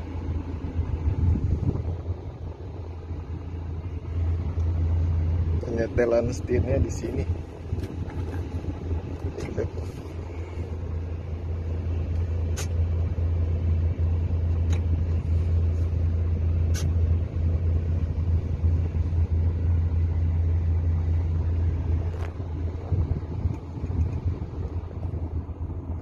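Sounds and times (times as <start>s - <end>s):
diesel truck engine idling: 0.0s - 26.0s
brief clicks: 16.7s - 17.0s.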